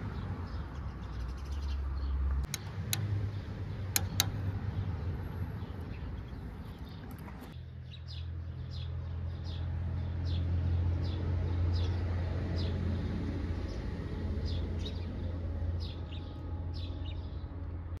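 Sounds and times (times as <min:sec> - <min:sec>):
small bird chirping: 0:00.2 - 0:12.0.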